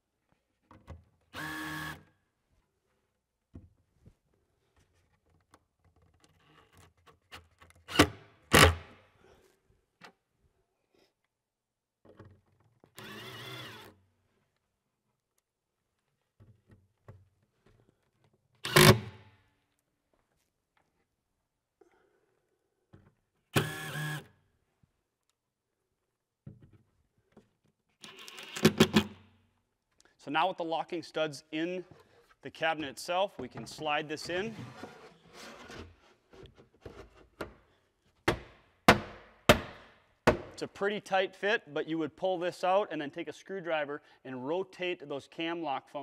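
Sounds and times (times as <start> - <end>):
cordless drill motor: 1.4 - 2.0, 13.0 - 14.0, 23.6 - 24.3.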